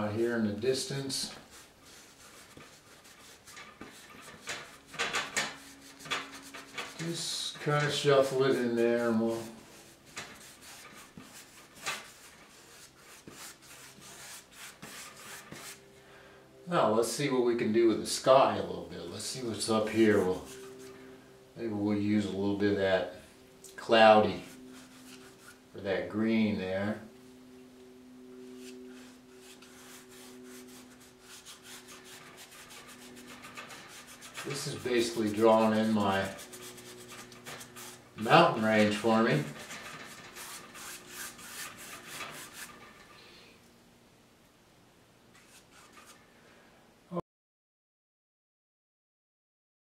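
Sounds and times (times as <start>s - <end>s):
paint brush scrubbing on canvas: 0.0s - 15.9s, 19.0s - 21.0s, 24.2s - 25.6s, 28.5s - 43.1s, 45.3s - 46.2s
low steady hum: 0.0s - 47.1s.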